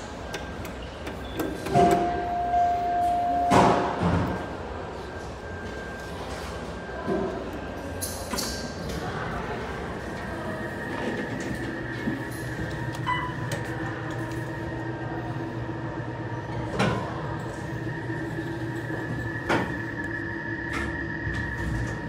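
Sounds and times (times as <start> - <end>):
elevator doors sliding: 0.0 - 22.0
elevator mechanical hum: 0.0 - 22.0
short ringing tone: 1.7 - 3.9.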